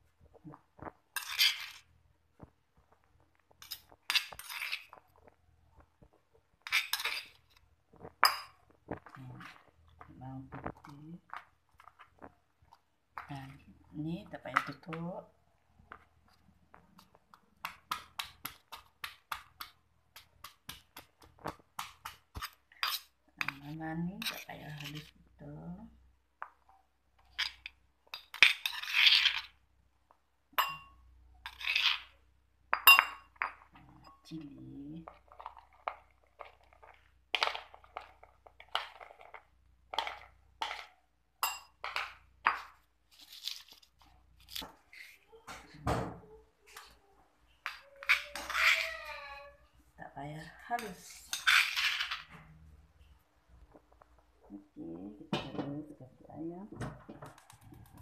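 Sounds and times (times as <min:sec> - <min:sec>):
metal spoon scraping stone mortar: 0:01.1 - 0:02.0, 0:03.5 - 0:05.4, 0:06.6 - 0:08.6, 0:17.8 - 0:25.2, 0:27.2 - 0:29.6, 0:30.6 - 0:39.3, 0:47.6 - 0:48.9, 0:50.8 - 0:52.5.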